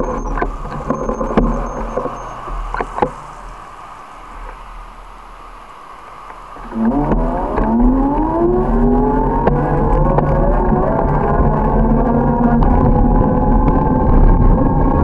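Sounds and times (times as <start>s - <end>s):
vehicle engine accelerating: 6.5s - 15.0s.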